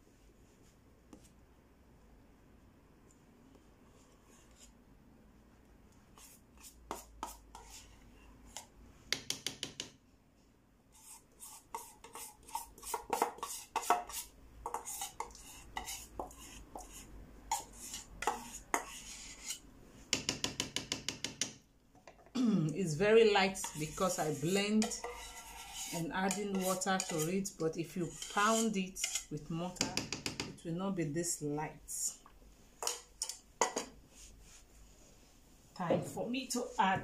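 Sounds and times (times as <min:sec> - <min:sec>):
metal spoon scraping steel bowl: 0:11.0 - 0:19.6, 0:23.4 - 0:30.0.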